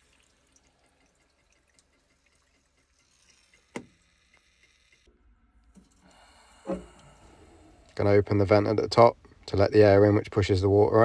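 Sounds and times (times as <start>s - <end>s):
water trickling through hose: 0.0s - 7.2s.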